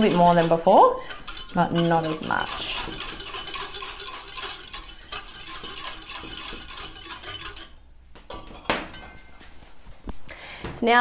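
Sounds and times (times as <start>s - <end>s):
whisk scraping a metal bowl: 0.0s - 7.8s.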